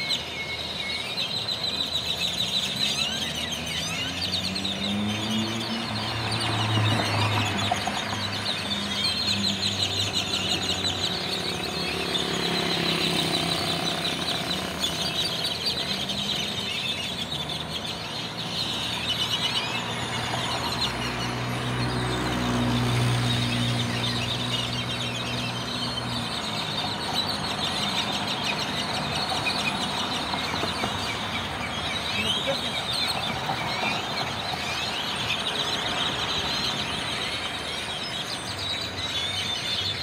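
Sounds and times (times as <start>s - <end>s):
flock of blackbirds chattering: 0.0s - 40.0s
vehicle engine hum: 1.5s - 39.0s.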